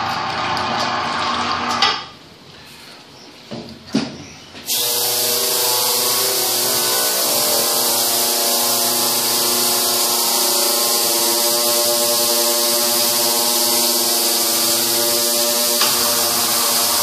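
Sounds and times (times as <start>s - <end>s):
ultrasonic cleaner buzzing hum: 4.7s - 17.0s.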